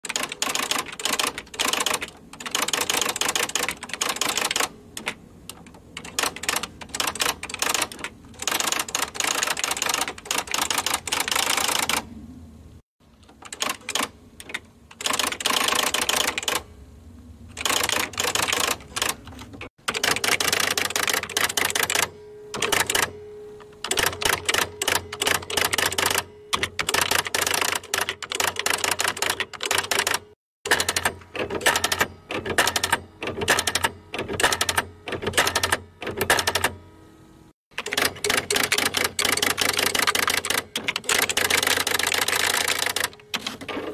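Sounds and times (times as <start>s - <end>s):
electric typewriter keystrokes: 0.0s - 12.1s, 13.2s - 16.7s, 17.5s - 23.2s, 23.8s - 36.8s, 37.7s - 43.9s
low steady hum: 16.5s - 19.7s, 21.4s - 26.8s.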